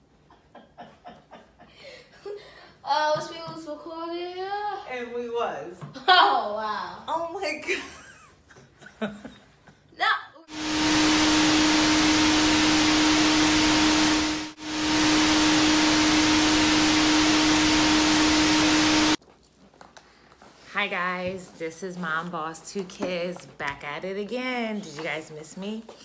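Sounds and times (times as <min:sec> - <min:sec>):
low hum tone: 0:10.5 - 0:19.2
tv static hiss: 0:10.5 - 0:19.2.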